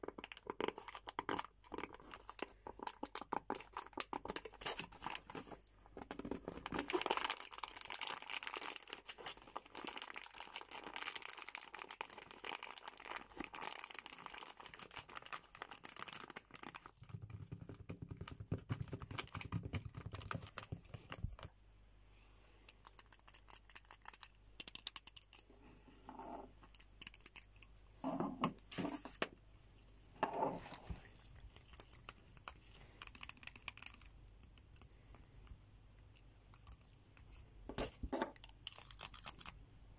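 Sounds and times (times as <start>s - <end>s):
fingers crinkling plastic packet: 0.0s - 21.5s, 31.0s - 35.1s, 38.3s - 39.6s.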